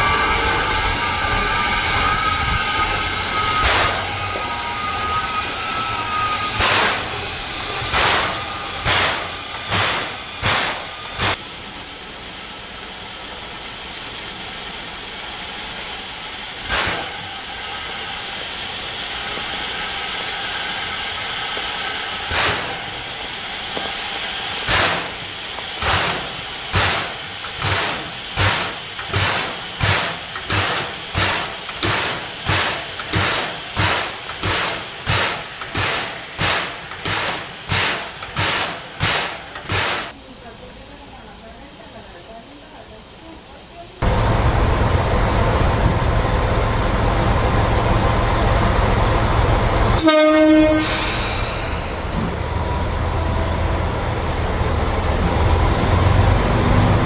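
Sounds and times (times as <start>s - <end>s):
steady hiss of steam: 0.0s - 57.0s
steam air compressor exhaust puffs: 1.9s - 44.0s, 49.8s - 52.5s.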